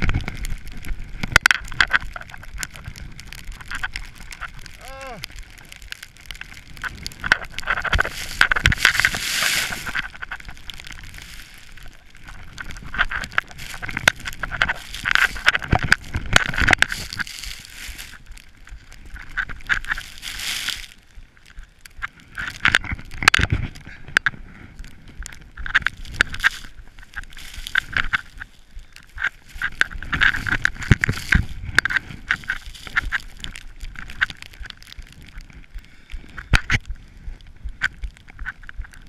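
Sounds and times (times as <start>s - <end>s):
skis sliding through powder snow: 2.2s - 21.4s, 25.9s - 34.2s.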